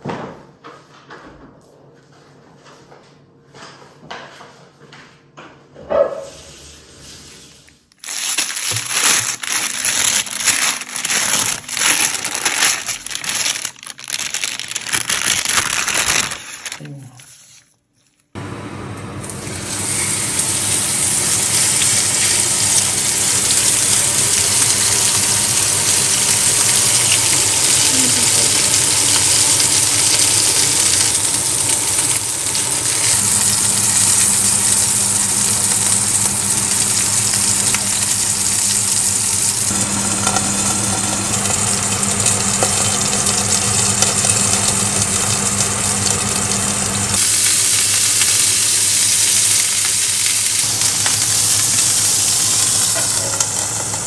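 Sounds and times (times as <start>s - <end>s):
steak sizzling in skillet: 19.4s - 54.0s.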